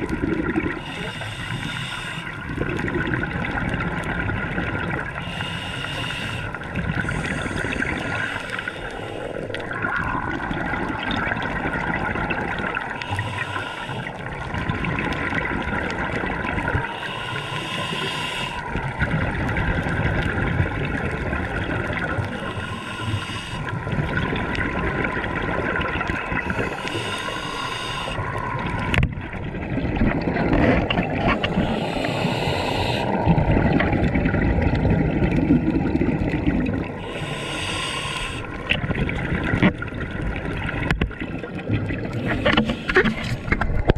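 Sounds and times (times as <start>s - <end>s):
bubbling exhales underwater: 0.0s - 1.2s, 2.3s - 5.4s, 6.5s - 17.2s, 17.8s - 43.9s
scuba regulator inhale hiss: 0.8s - 2.4s, 5.2s - 9.5s, 13.0s - 14.2s, 16.8s - 18.7s, 22.3s - 23.7s, 26.5s - 28.4s, 31.5s - 33.2s, 37.0s - 38.6s.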